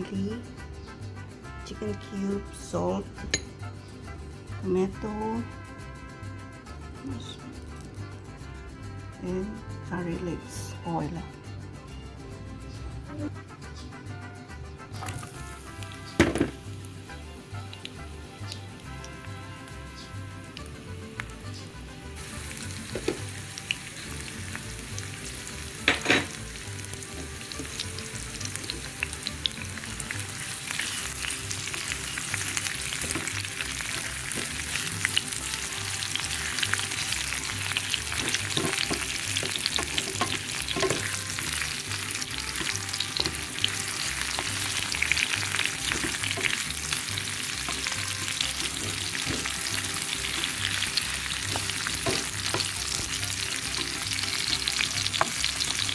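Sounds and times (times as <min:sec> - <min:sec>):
onion and garlic sizzling in oil: 0:14.8 - 0:55.9
wooden spatula scraping: 0:30.0 - 0:55.9.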